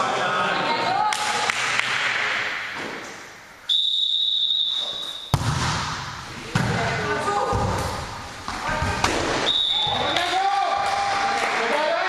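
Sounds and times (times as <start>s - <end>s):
referee's whistle: 3.7s - 5.4s, 9.4s - 10.2s
hand slapping volleyball: 5.3s - 6.9s.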